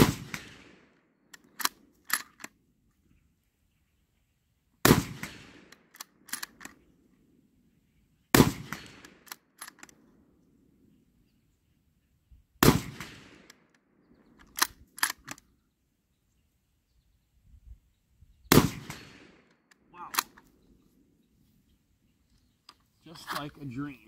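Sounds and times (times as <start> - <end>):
rifle shots with echo: 0.0 - 2.2, 4.8 - 6.7, 8.3 - 9.7, 12.6 - 14.0, 18.5 - 20.4
rifle action clicking: 1.3 - 2.6, 5.7 - 6.8, 8.7 - 10.0, 14.4 - 15.5, 18.9 - 20.5.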